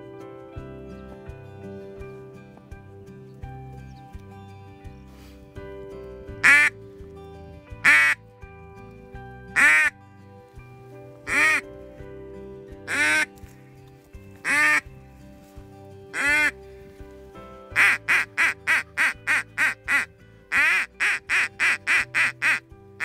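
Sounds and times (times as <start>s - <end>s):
background music: 0.0s - 23.0s
duck call quacks: 6.4s - 6.8s, 7.8s - 8.2s, 9.6s - 9.9s, 11.3s - 11.6s, 12.9s - 13.3s, 14.4s - 14.8s, 16.2s - 16.6s, 17.8s - 22.6s.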